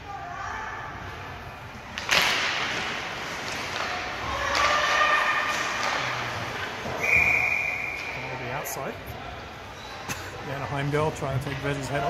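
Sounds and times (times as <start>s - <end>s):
hockey sticks cracking on puck: 1.8s - 7.0s
skates and sticks on ice: 1.9s - 8.2s.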